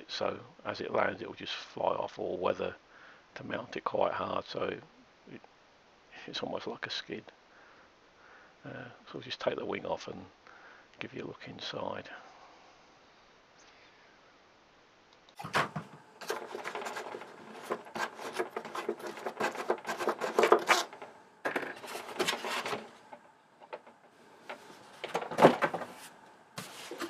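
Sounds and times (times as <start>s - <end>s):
foam scraping and clicking: 15.4s - 27.0s.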